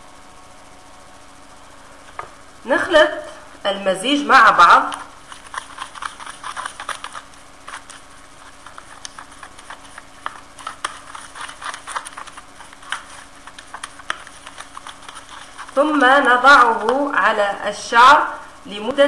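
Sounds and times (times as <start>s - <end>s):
spoon stirring thick mixture: 4.5s - 17.2s.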